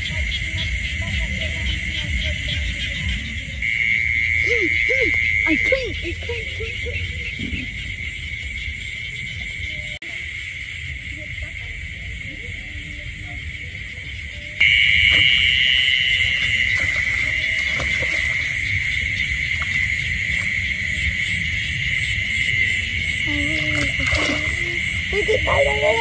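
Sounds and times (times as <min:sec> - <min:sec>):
crickets trilling: 0:00.0 - 0:26.0
hoe digging in wet mud: 0:16.4 - 0:20.8.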